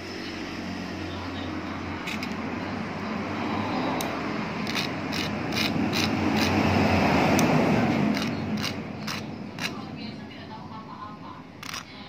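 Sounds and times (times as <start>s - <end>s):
sharp clicks: 4.0s - 6.6s, 8.1s - 9.8s.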